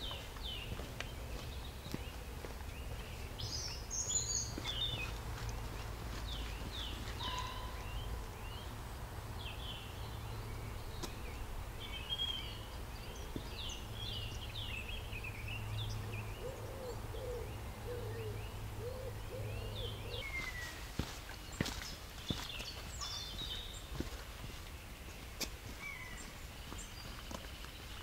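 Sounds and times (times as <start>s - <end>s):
small birds chirping and trilling: 0.0s - 28.0s
pigeon cooing: 16.4s - 20.4s.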